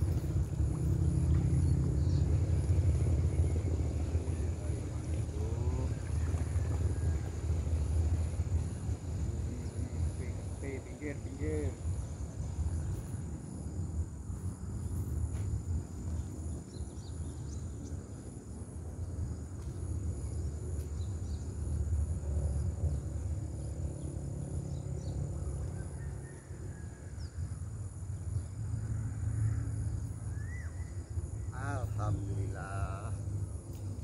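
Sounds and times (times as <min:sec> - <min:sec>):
steady low rumble: 0:00.0 - 0:26.0
high insect whine: 0:00.0 - 0:34.0.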